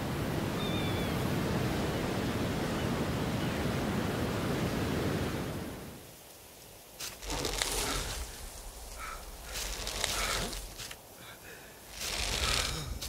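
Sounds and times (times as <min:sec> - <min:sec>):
wind: 0:00.0 - 0:13.0
surf rushing: 0:11.9 - 0:13.0.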